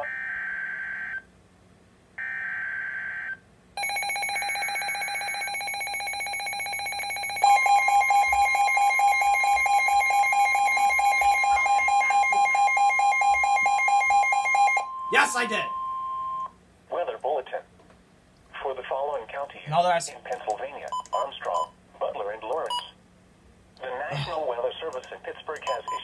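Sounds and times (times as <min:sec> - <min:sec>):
pulsed electronic alarm beeping: 0:02.2 - 0:16.5
steady warning alert tone: 0:03.8 - 0:16.5.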